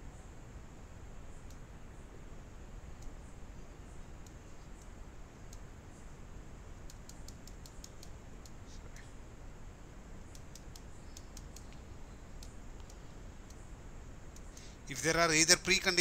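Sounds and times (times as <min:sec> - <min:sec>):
faint steady hiss: 0:00.0 - 0:16.0
computer mouse clicks: 0:06.8 - 0:08.6, 0:10.3 - 0:11.8.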